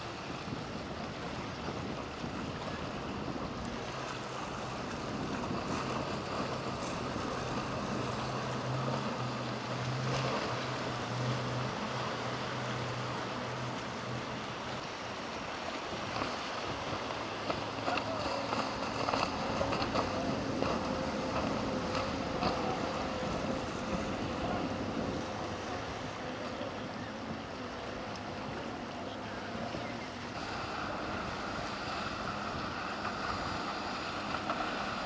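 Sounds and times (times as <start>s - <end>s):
wind noise on microphone: 0.0s - 8.4s, 15.9s - 26.1s
motorboat engine humming: 0.0s - 35.0s
waves washing: 0.0s - 35.0s.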